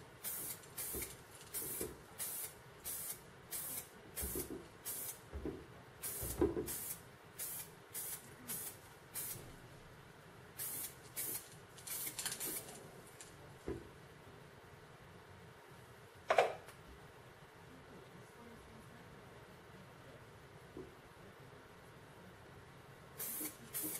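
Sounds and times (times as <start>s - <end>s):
spray paint can spraying: 0.2s - 5.2s, 6.0s - 9.4s, 10.6s - 12.8s, 23.2s - 23.9s.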